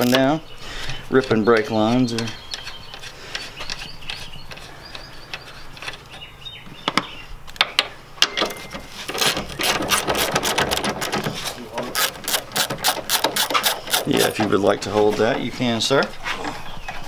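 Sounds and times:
socket ratchet clicking: 0:12.0 - 0:14.3.

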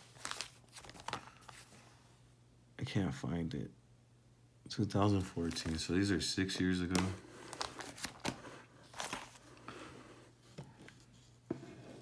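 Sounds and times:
plastic sleeves crinkling: 0:00.0 - 0:01.8, 0:05.1 - 0:09.6.

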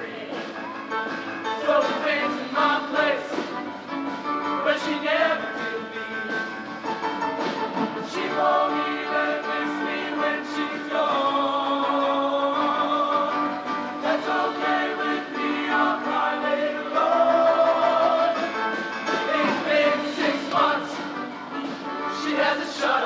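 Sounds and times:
male choir singing in harmony: 0:01.5 - 0:03.6, 0:04.6 - 0:06.5, 0:08.0 - 0:21.3, 0:22.0 - 0:23.0.

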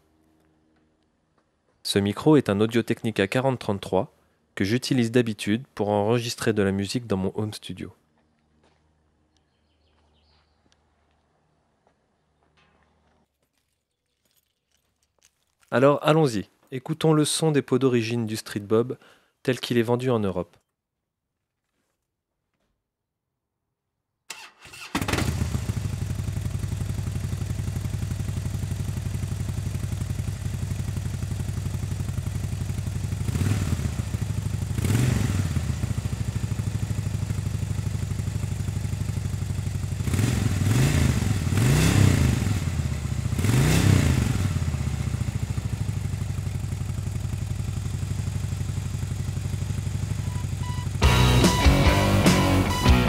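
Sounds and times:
motorcycle engine idling and revving: 0:25.0 - 0:53.0.

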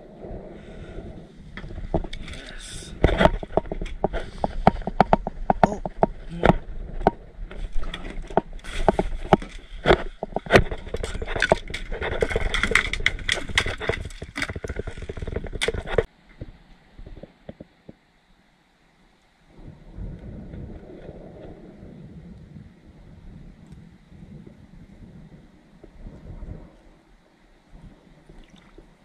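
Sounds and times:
fishing gear knocking and clattering: 0:03.0 - 0:16.1.

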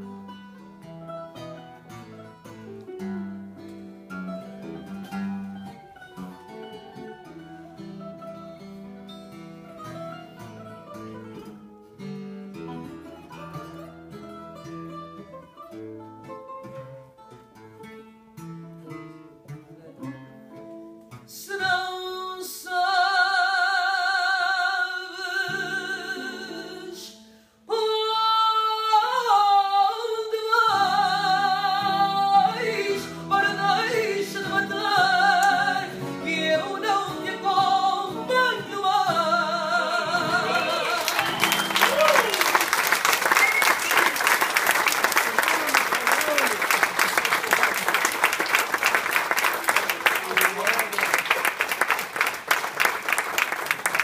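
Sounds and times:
acoustic guitars plucking: 0:00.0 - 0:54.0
man singing: 0:21.3 - 0:41.8.

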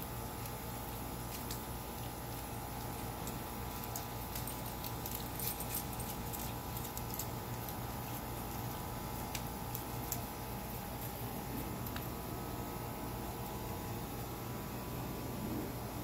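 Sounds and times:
steady background hum: 0:00.0 - 0:16.0
dogs scuffling on stone: 0:00.3 - 0:12.1.

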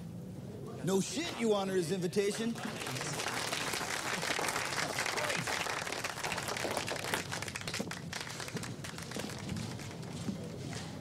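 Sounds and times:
crowd applauding: 0:02.4 - 0:10.2.

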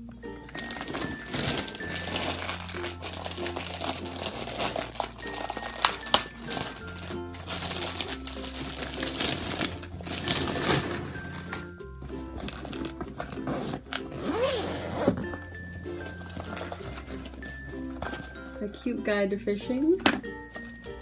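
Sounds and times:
plastic mailer bag crinkling: 0:00.4 - 0:11.8, 0:16.0 - 0:18.6.

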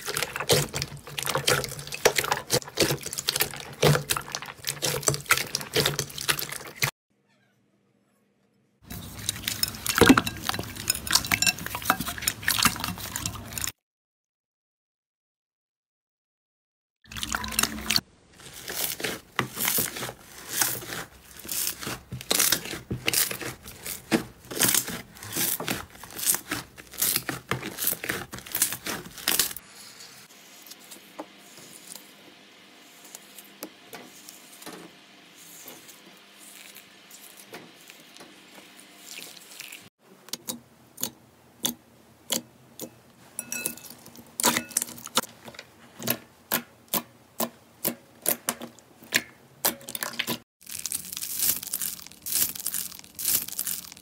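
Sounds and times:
slime squishing: 0:00.0 - 0:06.9, 0:17.1 - 0:32.2, 0:43.5 - 0:54.0
slime crackling and popping: 0:18.4 - 0:29.6, 0:50.2 - 0:54.0.

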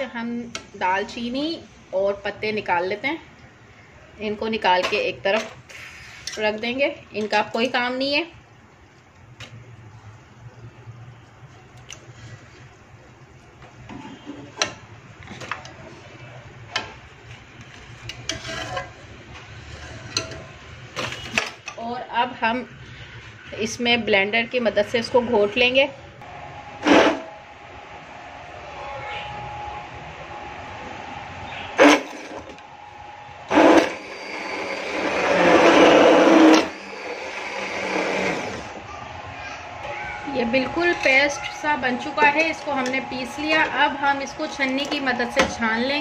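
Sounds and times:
utensils clinking against metal pot: 0:19.8 - 0:21.8
electric hand blender pureeing: 0:33.5 - 0:38.8.

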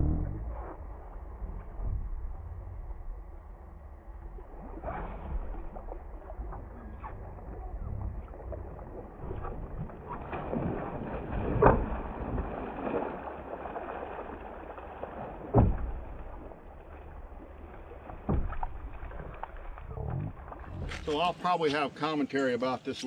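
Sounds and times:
fish thrashing and splashing: 0:04.7 - 0:21.1.

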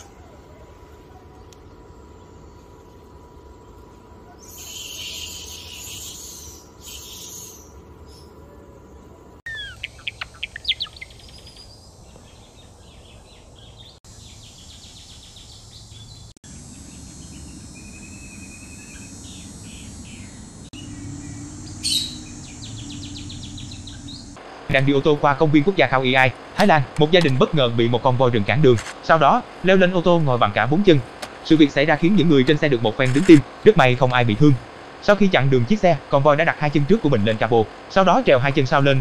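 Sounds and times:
sparrow chirping: 0:04.3 - 0:08.4, 0:09.5 - 0:24.4.

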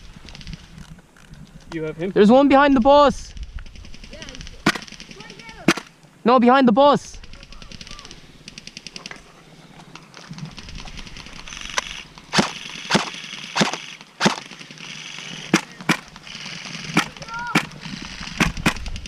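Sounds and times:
airsoft gunfire: 0:03.7 - 0:05.9, 0:07.3 - 0:09.2, 0:10.5 - 0:19.0.

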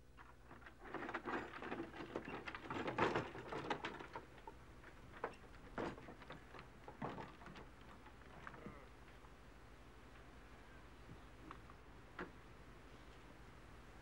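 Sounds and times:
wooden cart rattling and knocking: 0:00.4 - 0:08.6.

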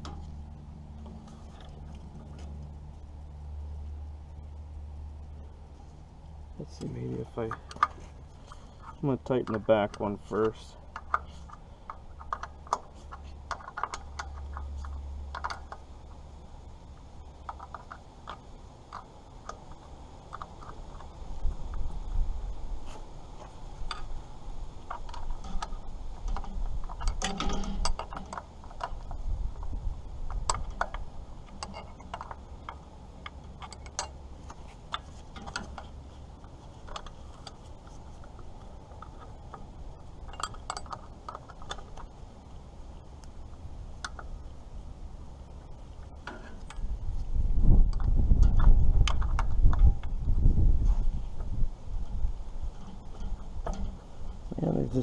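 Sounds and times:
wrench metal clicks: 0:38.9 - 0:42.1.

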